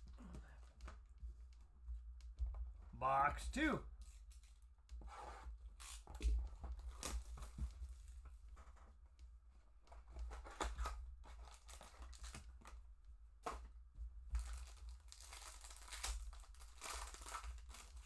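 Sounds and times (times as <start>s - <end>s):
foil wrapper crinkling and tearing: 10.6s - 12.5s, 14.4s - 18.0s.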